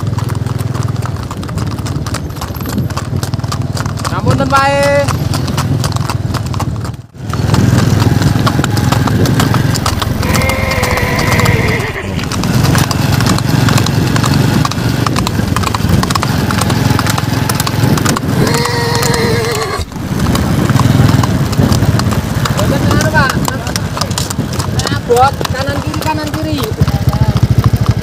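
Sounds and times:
horse hooves clip-clopping: 0.0s - 28.0s
drawn-out wavering calls: 10.2s - 12.3s, 18.4s - 20.0s.

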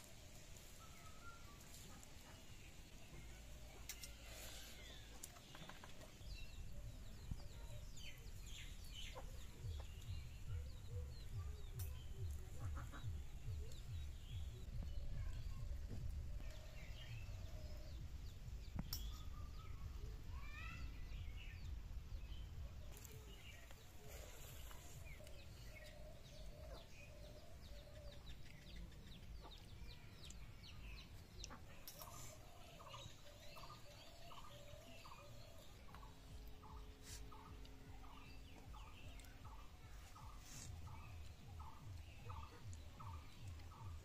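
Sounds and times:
small birds chirping: 0.0s - 44.0s
chickens clucking: 12.3s - 13.8s, 31.3s - 35.3s.

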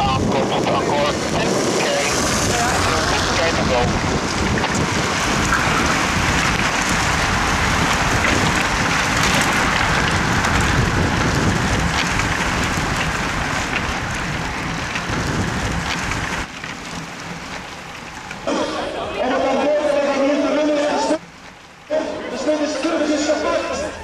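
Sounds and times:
wind rumble on microphone: 0.0s - 17.7s
heavy rain pouring: 0.0s - 24.0s.

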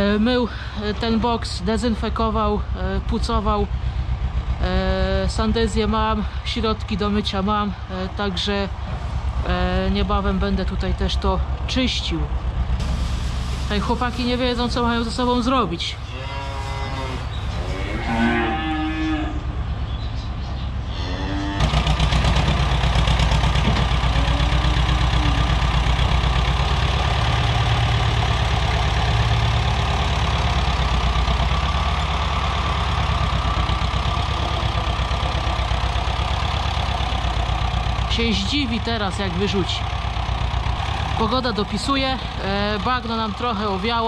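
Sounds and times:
tractor engine running: 0.0s - 17.7s, 21.5s - 44.0s
bulls mooing: 16.0s - 19.7s, 20.8s - 21.8s, 23.9s - 27.8s.

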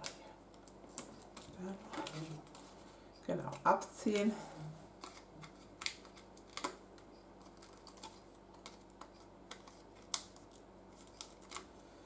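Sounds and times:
paper pieces peeling: 7.4s - 11.7s.

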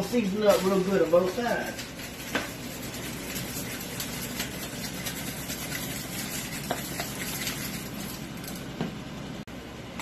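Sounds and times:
fan whirring with hiss: 0.0s - 10.0s.

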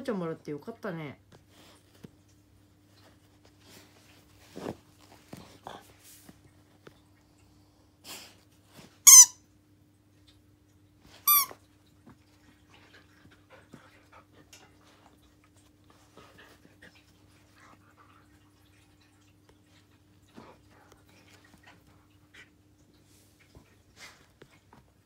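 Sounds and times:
plush toy squeaker squeaking: 9.1s - 9.4s, 11.3s - 11.5s.

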